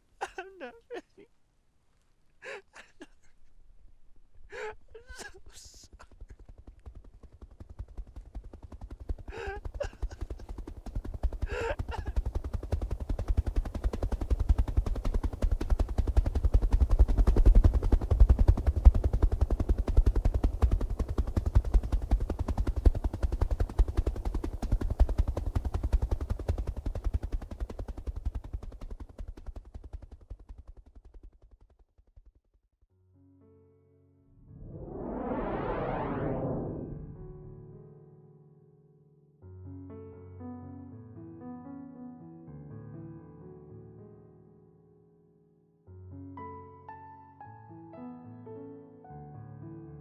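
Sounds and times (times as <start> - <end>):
rapid crackling: 5.1 - 31.4
low rumble: 34.3 - 37.7.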